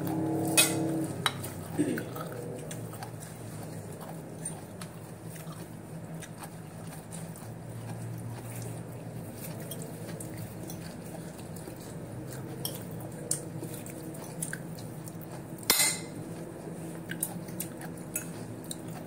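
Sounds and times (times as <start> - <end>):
low hum: 0.0 - 19.0
fork scraping on ceramic plate: 0.4 - 1.6.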